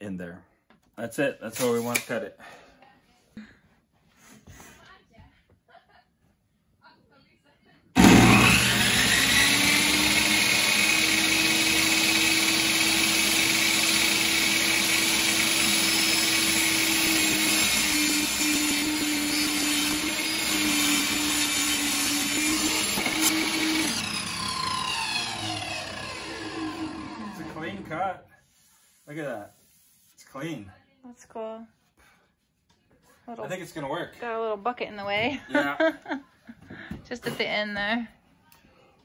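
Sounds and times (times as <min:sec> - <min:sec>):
table saw cutting wood: 0:08.0 - 0:28.1.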